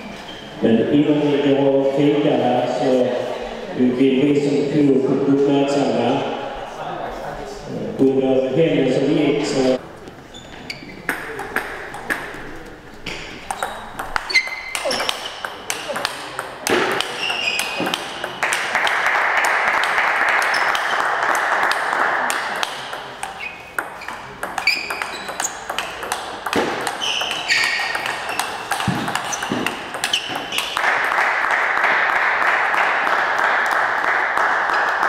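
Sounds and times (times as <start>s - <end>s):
table tennis ball clicking: 11.0s - 31.2s
short high squeaks: 13.5s - 15.4s, 16.9s - 18.0s, 23.4s - 25.7s, 26.8s - 30.8s.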